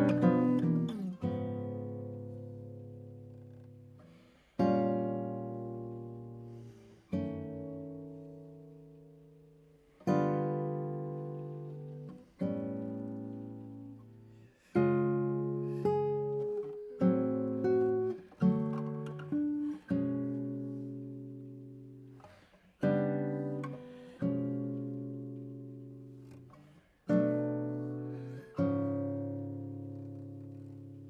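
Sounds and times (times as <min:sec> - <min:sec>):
classical guitar chords: 0:00.0 - 0:31.0.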